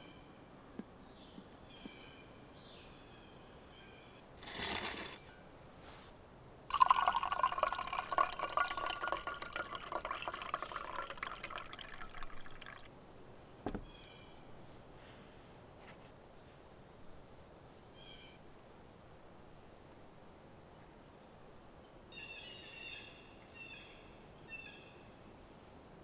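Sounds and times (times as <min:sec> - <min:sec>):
coffee pouring into a mug: 0:06.7 - 0:12.9.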